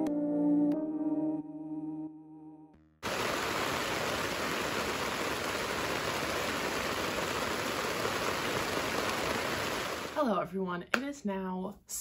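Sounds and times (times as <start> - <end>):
soft ambient music: 0.0 - 2.8
rain falling on a tent: 3.0 - 10.2.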